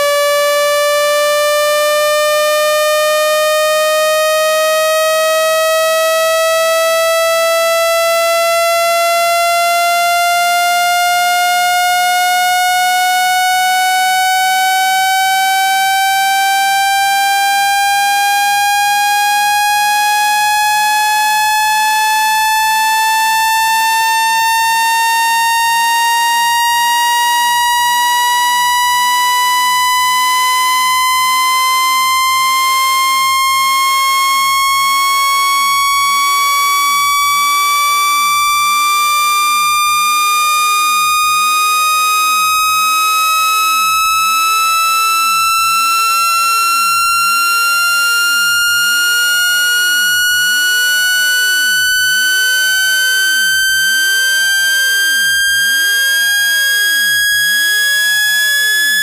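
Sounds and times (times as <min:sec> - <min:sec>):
rising electronic test tone: 0:00.0 - 0:59.0.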